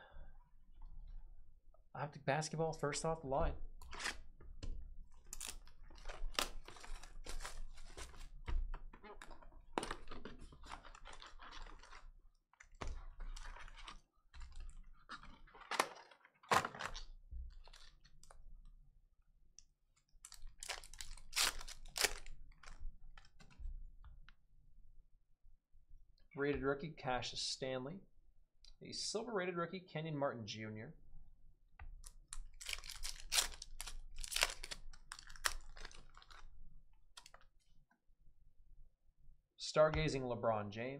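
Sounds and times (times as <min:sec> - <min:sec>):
cellophane crinkling and tearing: 0:05.2 - 0:08.4, 0:09.0 - 0:18.4, 0:20.2 - 0:23.4, 0:32.0 - 0:36.5
foil packs rustling and tearing: 0:05.3 - 0:08.4, 0:20.3 - 0:23.3, 0:32.6 - 0:36.4.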